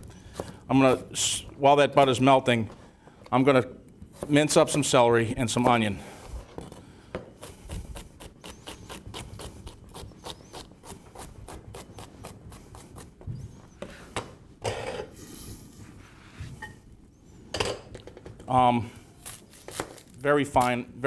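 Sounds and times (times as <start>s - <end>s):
knife scrape: 7.4s - 13.5s.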